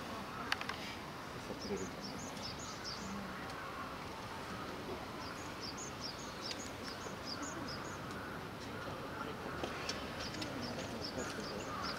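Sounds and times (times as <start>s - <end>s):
small bird chirping: 1.4s - 3.6s, 5.1s - 8.2s, 9.7s - 11.9s.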